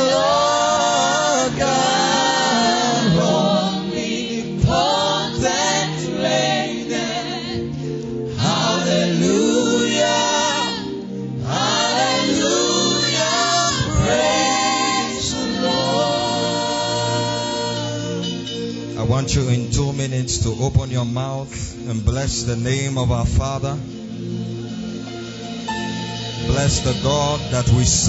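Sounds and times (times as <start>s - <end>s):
gospel choir singing: 0.0s - 19.2s, 25.2s - 28.0s
solo singer on a microphone: 26.4s - 28.0s.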